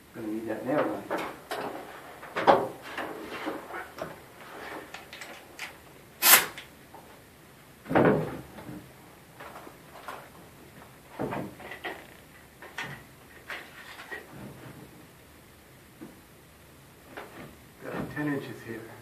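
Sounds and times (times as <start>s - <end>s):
knocks and clunks of lumber: 2.3s - 4.2s, 7.8s - 8.9s
sharp loud snap: 6.2s - 6.7s.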